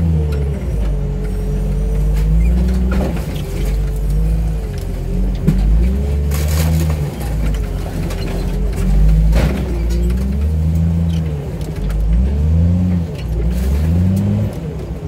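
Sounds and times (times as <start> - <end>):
wheel loader engine under load: 0.0 - 15.0
metal clanks: 2.0 - 12.2.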